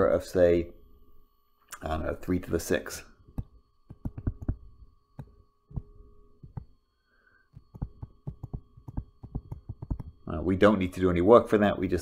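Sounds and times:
faint electrical hum: 0:00.0 - 0:12.0
stylus tapping on tablet screen: 0:03.3 - 0:06.8, 0:07.5 - 0:10.2.

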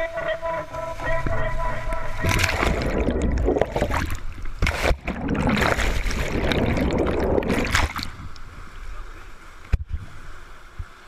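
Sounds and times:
whitewater rushing and splashing: 0:00.0 - 0:08.6.

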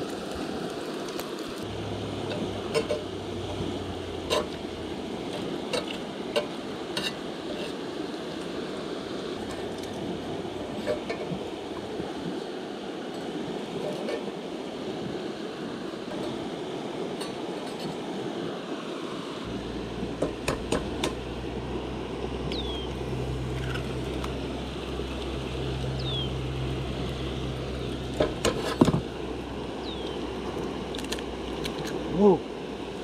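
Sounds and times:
steady rushing hiss: 0:00.0 - 0:33.0
low engine drone: 0:01.6 - 0:07.6, 0:08.4 - 0:11.9, 0:19.4 - 0:33.0.

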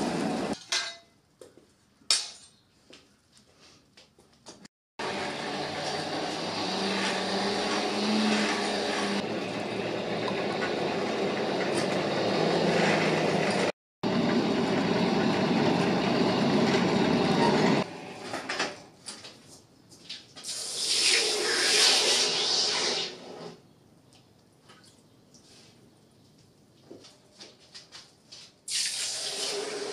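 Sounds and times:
hand-cranked forge blower whirring: 0:00.0 - 0:00.6, 0:05.0 - 0:18.8.

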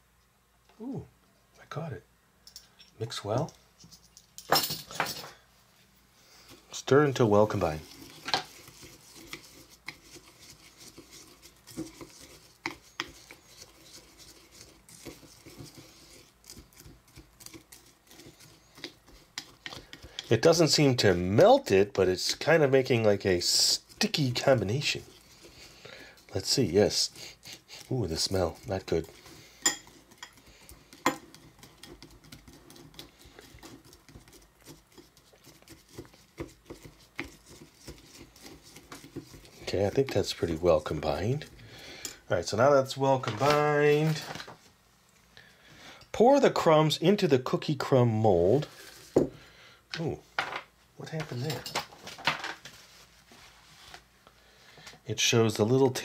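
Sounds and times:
utensil stirring in bowl: 0:06.4 - 0:44.5.

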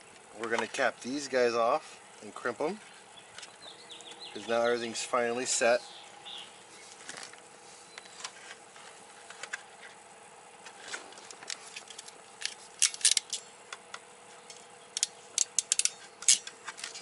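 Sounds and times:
wire crimper clicking: 0:15.0 - 0:17.0.

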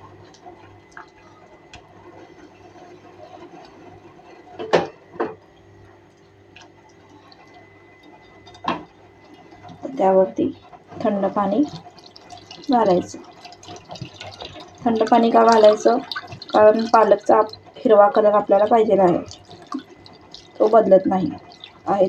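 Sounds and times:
faint hum: 0:00.0 - 0:22.0
water draining and dripping into sink: 0:06.2 - 0:22.0.

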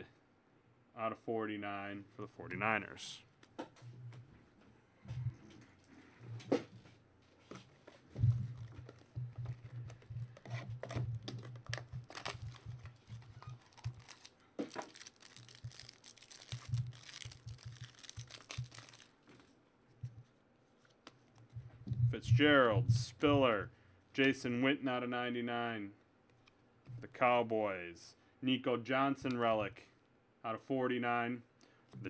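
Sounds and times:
cards being handled: 0:07.4 - 0:21.6
foil wrapper tearing and crinkling: 0:10.4 - 0:19.3.

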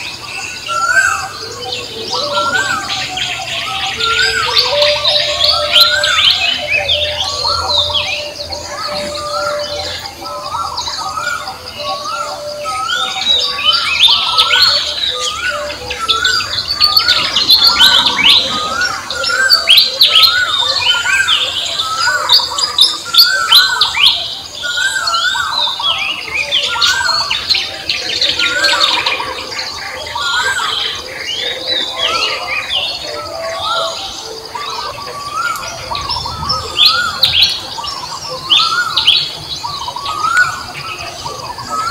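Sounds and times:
birds chirping and singing: 0:00.0 - 0:41.9
bird repeating rising phrase: 0:00.6 - 0:22.2.

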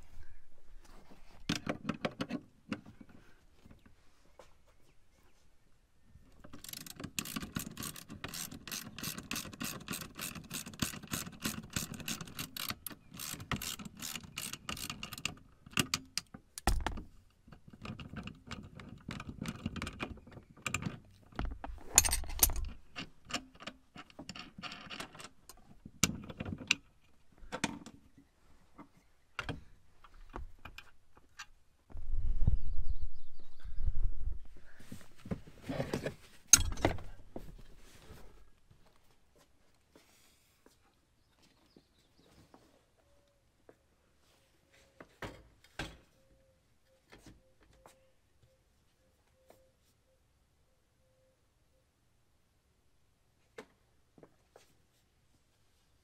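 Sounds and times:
tools clinking: 0:21.8 - 0:25.3.

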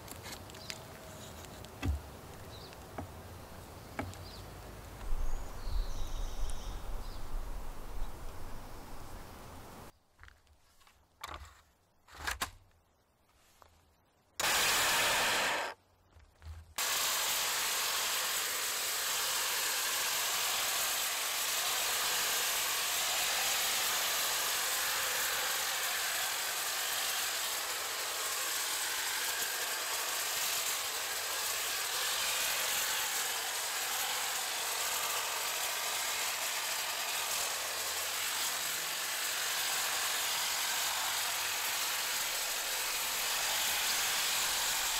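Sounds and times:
blades cutting brush: 0:00.0 - 0:03.2, 0:03.9 - 0:04.5, 0:14.4 - 0:15.8, 0:16.8 - 0:44.9
hedge trimmer running: 0:01.6 - 0:03.2, 0:14.4 - 0:15.8, 0:16.8 - 0:44.9.

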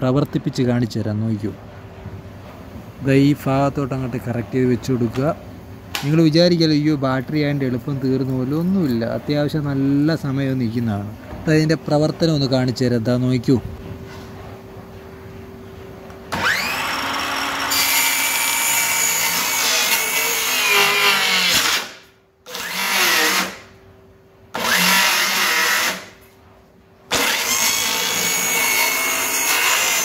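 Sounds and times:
circular saw cutting wood: 0:16.3 - 0:23.7, 0:24.5 - 0:26.2, 0:27.1 - 0:30.0.

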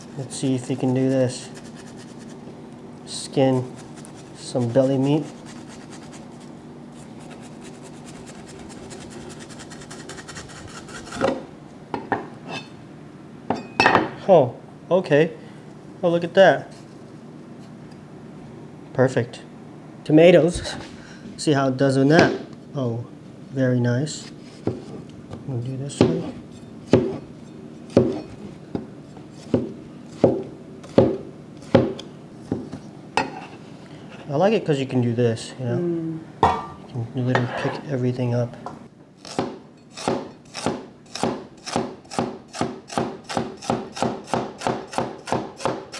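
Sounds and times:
cleaver scraping fish skin: 0:00.0 - 0:02.4, 0:03.6 - 0:11.4
cleaver chopping on cutting board: 0:26.9 - 0:27.2, 0:27.9 - 0:28.2, 0:29.5 - 0:32.6, 0:39.3 - 0:45.9.

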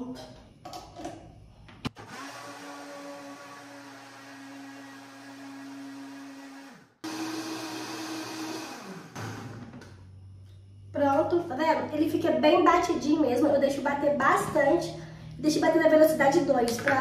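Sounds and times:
blender motor running: 0:01.9 - 0:10.1.

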